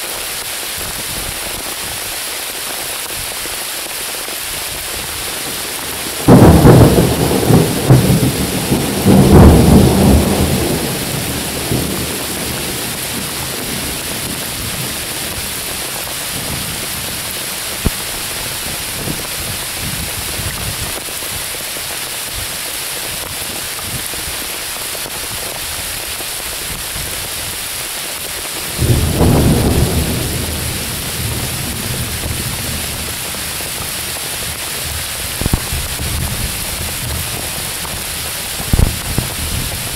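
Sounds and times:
rain on leaves: 0.0s - 39.9s
thunder rumbling: 4.8s - 21.0s, 28.6s - 39.9s.

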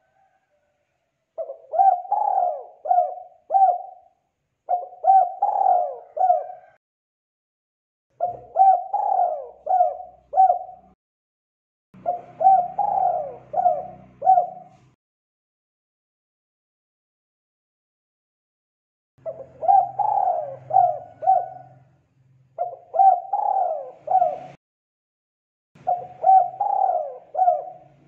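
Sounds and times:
dove cooing: 1.4s - 6.8s, 8.2s - 11.0s, 12.0s - 15.0s, 19.2s - 22.0s, 22.6s - 24.6s, 25.8s - 28.0s.

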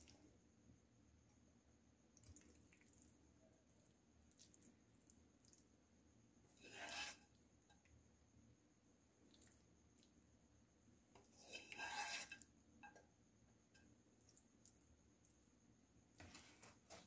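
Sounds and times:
spatula scraping pasta: 6.5s - 7.8s, 11.2s - 13.0s.

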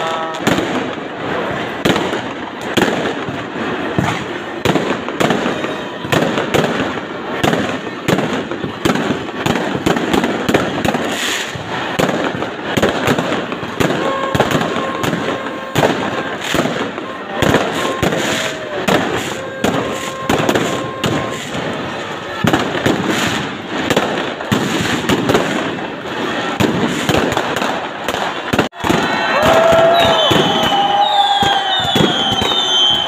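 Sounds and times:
crowd voices: 0.0s - 33.0s
firecrackers banging and crackling: 0.0s - 33.0s.

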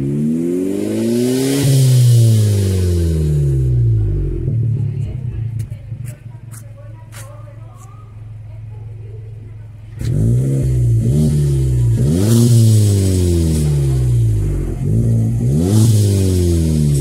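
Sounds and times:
car engine revving loud exhaust: 0.0s - 5.6s, 9.6s - 17.0s.

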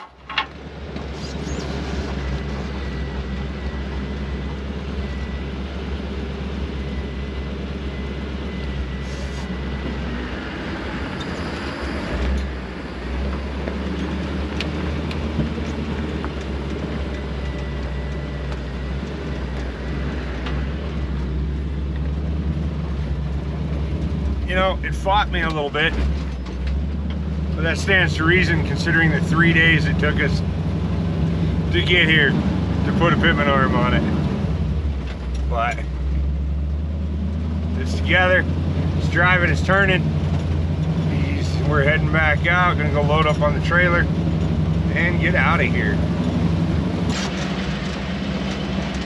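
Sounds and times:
tyre and road noise: 0.0s - 49.0s
vehicle engine rumble: 0.0s - 49.0s.

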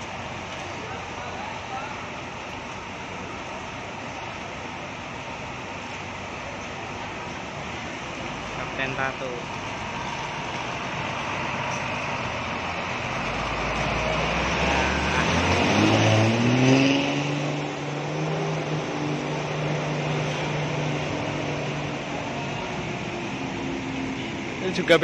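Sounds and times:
bus diesel engine revving: 0.0s - 25.0s.

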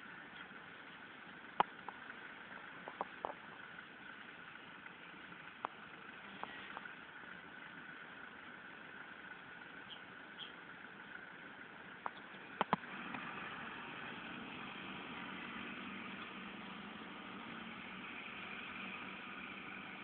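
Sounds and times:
diesel engine running: 0.0s - 20.0s
sharp clicks: 12.0s - 13.2s.

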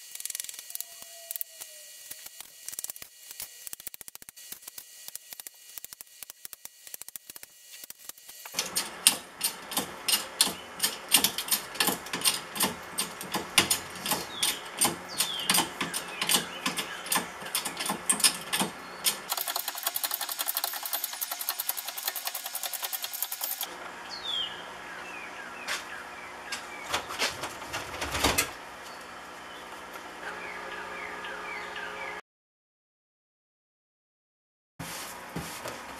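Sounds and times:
hand tools clicking on metal: 0.0s - 23.7s
bird chirps: 24.0s - 26.9s.

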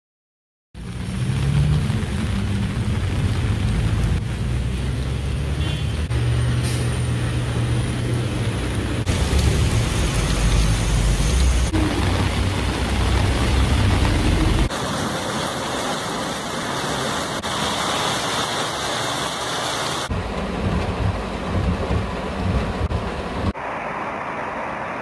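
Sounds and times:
vehicle engine rumble: 0.8s - 17.9s, 19.7s - 25.0s
heavy rain hiss: 1.5s - 20.5s.

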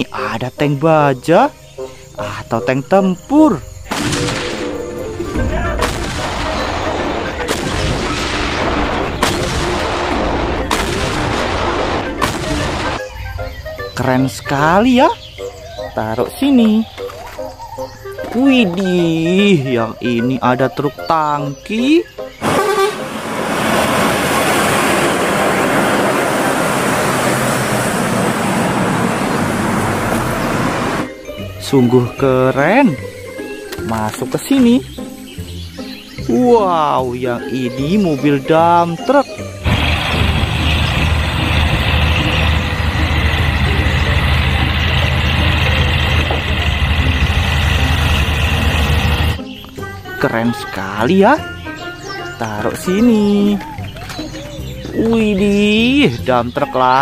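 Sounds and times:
artillery gun blasts: 3.9s - 4.8s, 5.8s - 13.0s
rumble of gunfire: 3.9s - 4.8s, 5.8s - 13.0s
tanker truck driving past: 22.4s - 31.2s, 39.6s - 49.4s.

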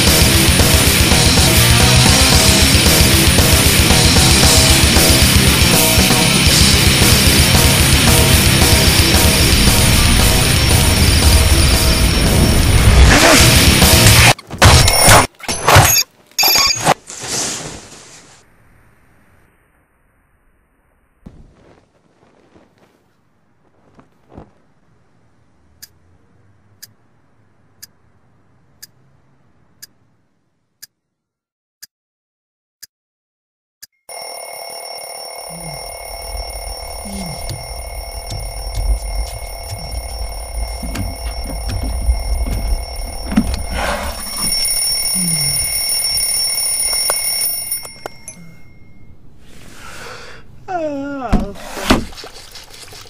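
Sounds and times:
alarm clock ringing: 7.7s - 13.0s, 34.1s - 49.2s
person yawning: 37.0s - 37.5s, 45.1s - 45.7s, 50.0s - 51.6s
clock ticking: 37.0s - 43.8s.

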